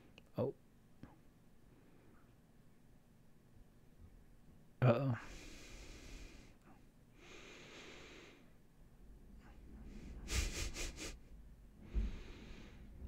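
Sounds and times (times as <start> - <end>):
man chuckling through nose: 10.2 - 11.2
man breathing into microphone: 11.8 - 13.0.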